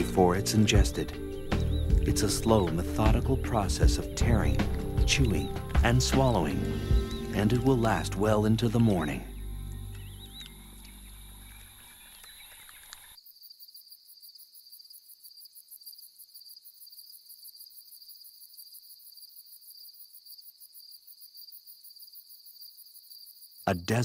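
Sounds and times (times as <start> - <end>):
background music: 0.0 - 11.6
crickets chirring: 0.2 - 24.0.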